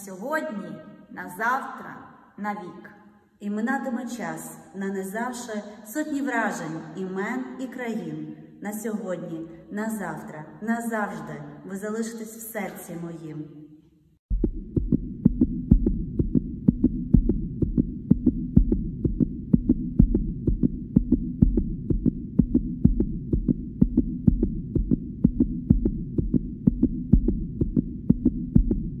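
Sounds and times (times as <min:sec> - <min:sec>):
heartbeat thumps: 0:14.3 - 0:29.0.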